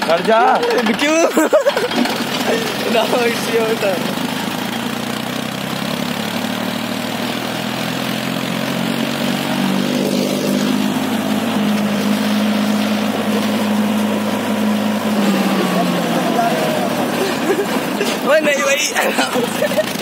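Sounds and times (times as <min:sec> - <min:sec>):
tractor diesel engine running: 0:00.0 - 0:20.0.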